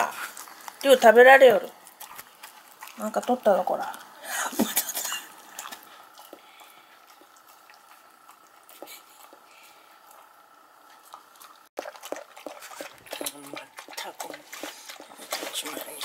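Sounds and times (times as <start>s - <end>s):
faint high hum: 0.0s - 11.7s
animals lapping from a bowl: 0.0s - 16.0s.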